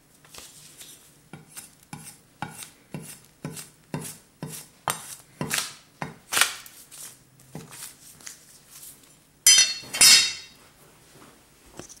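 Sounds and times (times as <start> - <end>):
scraping and paper rustling: 0.1 - 1.8, 6.3 - 9.2
knife tapping: 9.5 - 10.6.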